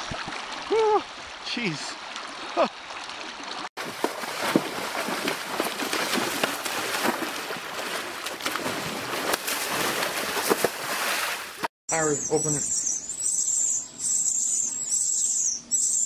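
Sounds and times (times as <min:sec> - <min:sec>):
horse splashing through water: 0:02.1 - 0:11.7.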